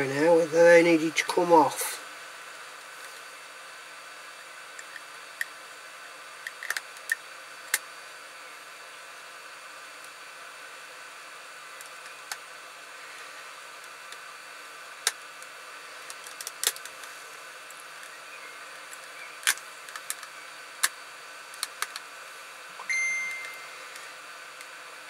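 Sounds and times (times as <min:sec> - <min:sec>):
plastic clicks and snaps: 0:06.4 - 0:07.8
brief ringing tone: 0:22.8 - 0:23.8.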